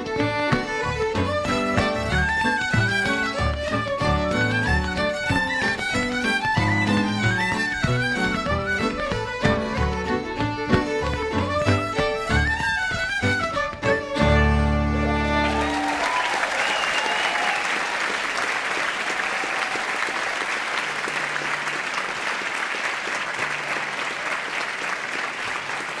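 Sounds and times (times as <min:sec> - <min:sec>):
fiddle-led string ensemble: 0:00.0 - 0:16.1
audience applauding: 0:14.9 - 0:26.0.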